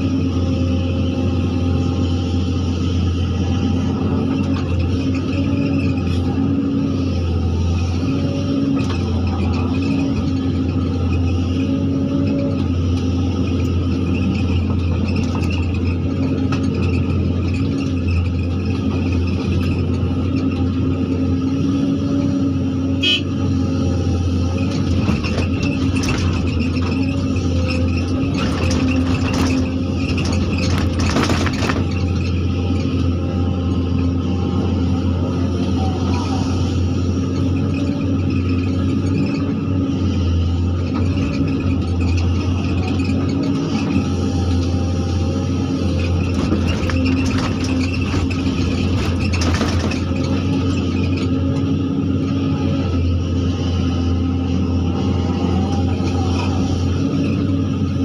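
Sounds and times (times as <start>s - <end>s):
diesel engine running: 0.0s - 58.0s
gravel and rocks clattering: 24.9s - 32.8s, 45.9s - 51.3s.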